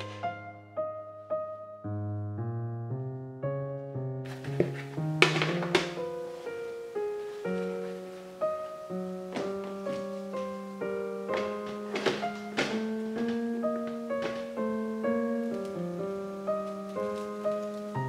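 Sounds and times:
gentle solo piano music: 0:00.0 - 0:18.0
kitchen bowls knocking: 0:04.7 - 0:06.0.

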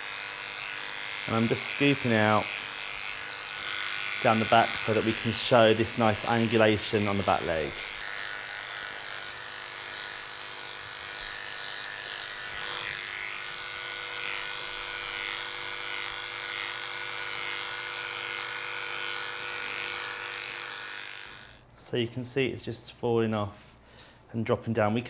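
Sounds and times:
electric clippers humming: 0:00.0 - 0:21.6.

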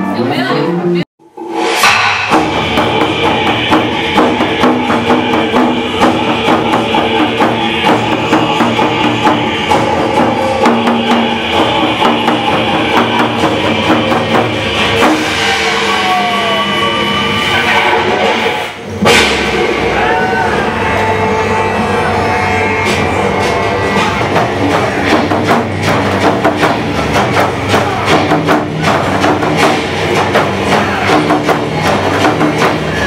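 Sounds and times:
barrel drum beating fast: 0:01.8 - 0:16.5, 0:22.9 - 0:33.0
sustained backing tones: 0:01.9 - 0:33.0.

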